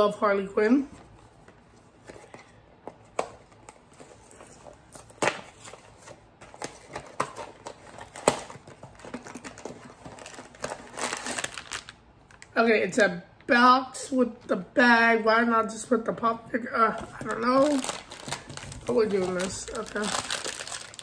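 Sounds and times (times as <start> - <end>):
bag crinkling: 8.8 - 12.5, 17.2 - 21.0
cardboard flaps clicking and rustling: 17.0 - 21.0.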